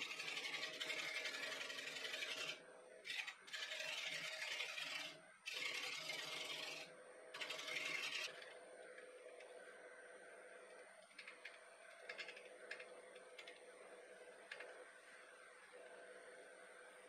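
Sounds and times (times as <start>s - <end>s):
gouge cutting spinning wood: 0.0s - 8.5s
wood lathe humming: 0.0s - 10.6s.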